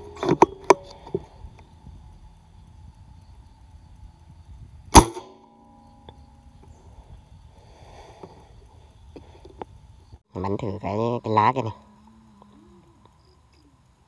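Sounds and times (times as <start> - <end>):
air rifle shot: 4.9 - 5.4.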